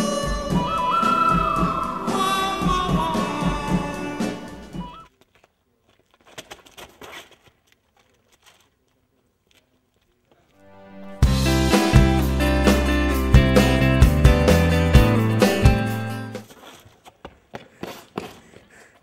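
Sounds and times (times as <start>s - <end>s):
background music with steady beat: 0.0s - 5.0s, 10.6s - 16.4s
faint rustles and clicks: 5.0s - 10.6s.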